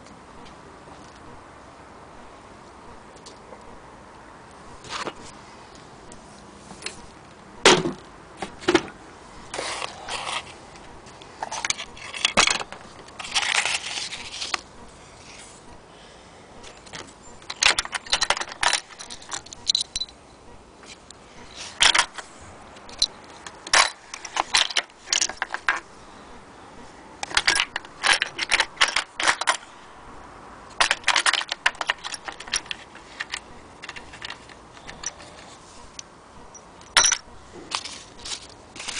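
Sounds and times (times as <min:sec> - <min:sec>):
small metal parts clinking: 0:11.4 - 0:14.6, 0:16.7 - 0:20.2, 0:21.8 - 0:25.9, 0:27.2 - 0:29.7, 0:30.7 - 0:38.9.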